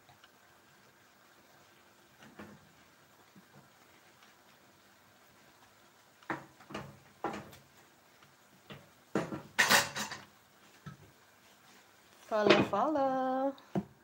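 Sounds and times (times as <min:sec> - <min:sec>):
spatula scraping a pan: 0:09.2 - 0:10.9.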